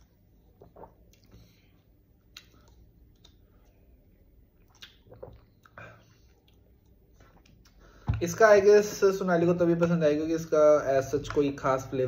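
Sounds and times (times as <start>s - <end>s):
person sipping and swallowing: 0.4s - 3.8s, 4.5s - 7.8s
mouth smacks and clicks: 4.6s - 7.8s.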